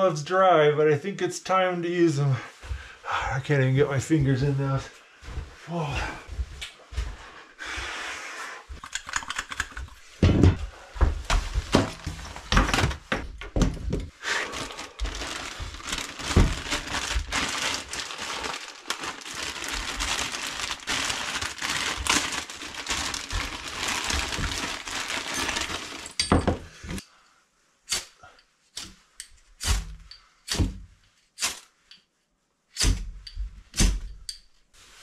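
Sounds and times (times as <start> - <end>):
gear crinkling and rustling: 11.4 - 26.6.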